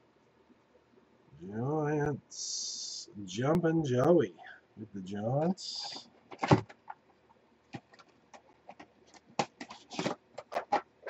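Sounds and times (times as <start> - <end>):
trading cards tapping and sliding: 7.7 - 11.0.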